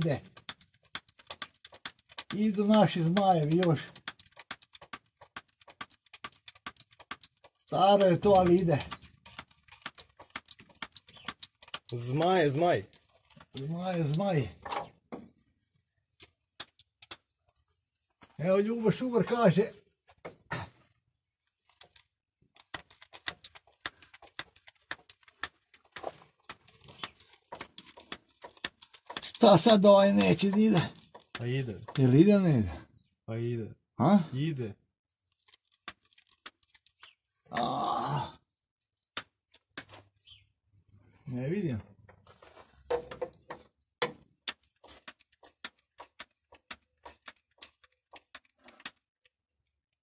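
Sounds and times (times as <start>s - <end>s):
grease gun clicking: 0.2s - 14.2s, 21.7s - 32.2s.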